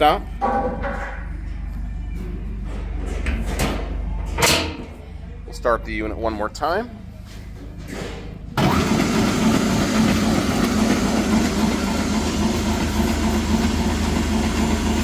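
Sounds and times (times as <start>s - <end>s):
electric motor starting and humming: 8.6s - 15.0s.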